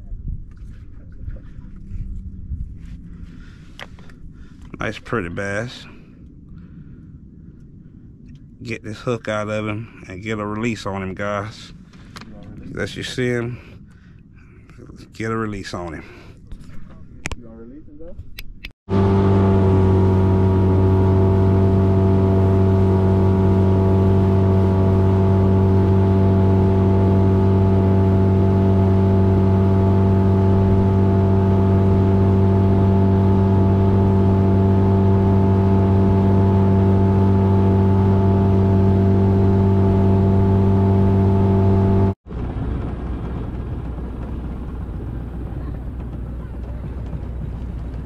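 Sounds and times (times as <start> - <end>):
boat motor droning: 18.9 - 48.0.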